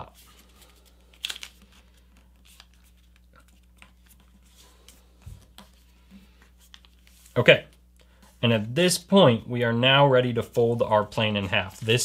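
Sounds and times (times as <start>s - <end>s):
paper crinkling and rustling: 0.0s - 7.4s, 10.8s - 12.0s.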